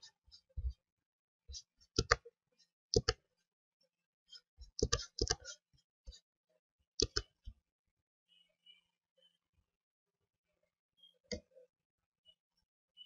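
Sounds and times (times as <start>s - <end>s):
computer mouse clicking: 2.0s - 2.2s, 3.0s - 3.2s, 4.8s - 5.5s, 7.0s - 7.3s.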